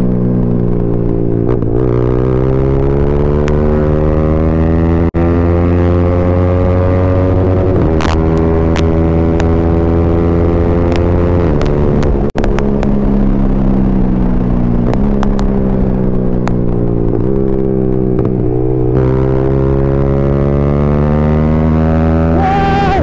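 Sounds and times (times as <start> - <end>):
motorcycle engine running loud: 0.0 - 23.0.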